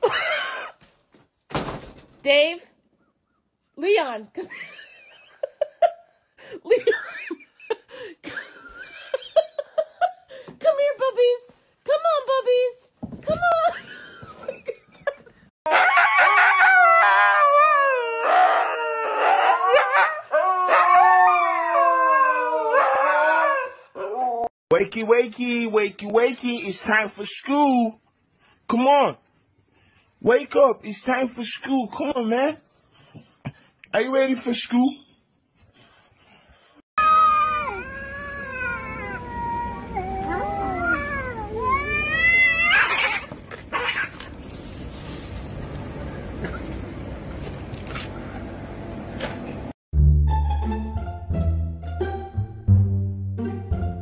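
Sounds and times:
husky howling: 15.7 - 24.5, 37.0 - 44.2
cats yowling: 37.0 - 44.2.

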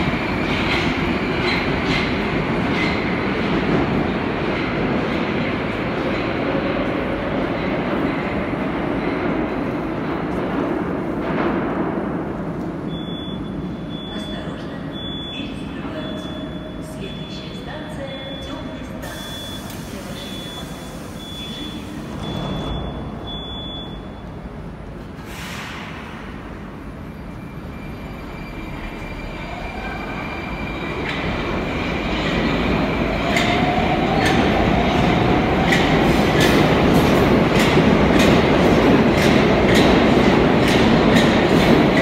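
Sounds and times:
door warning beeps: 12.9 - 24.4
train doors closing: 18.4 - 26.8, 27.5 - 42.0
train rumble: 24.2 - 42.0.

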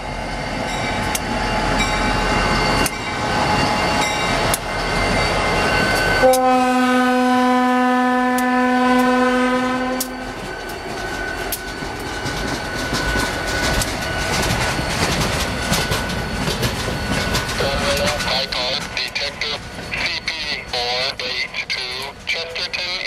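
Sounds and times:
train wheels clacking: 0.6 - 6.6, 8.3 - 23.0
locomotive horn blast: 6.2 - 10.2.

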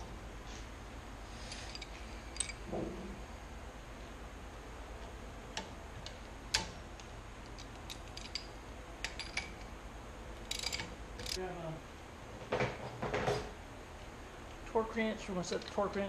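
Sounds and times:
metal clicks of wrench and parts: 5.6 - 9.7, 10.5 - 11.4, 15.5 - 16.0.

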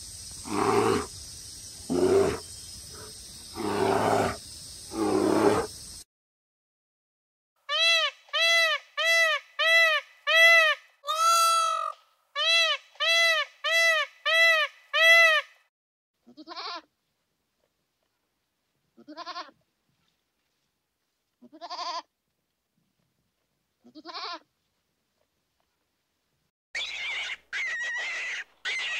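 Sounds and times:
low quavering bleats: 0.4 - 1.1, 1.9 - 2.4, 3.5 - 5.7
short high animal calls: 26.8 - 28.9.

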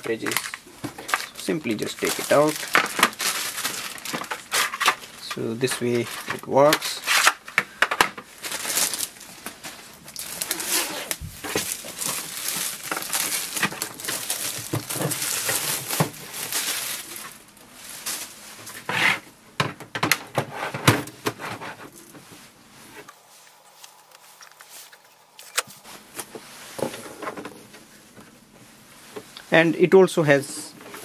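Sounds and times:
plastic wrap crinkling: 0.0 - 18.9.

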